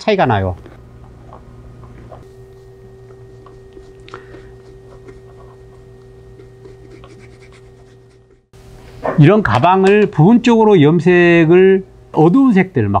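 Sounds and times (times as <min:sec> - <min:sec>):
steady low hum: 0:00.0 - 0:13.0
brush dabbing on leather: 0:06.4 - 0:08.4.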